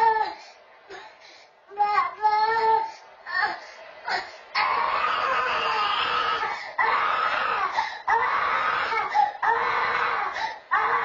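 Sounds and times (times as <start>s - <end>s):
quick breaths: 0.4s - 1.6s, 7.7s - 8.1s, 10.3s - 10.7s.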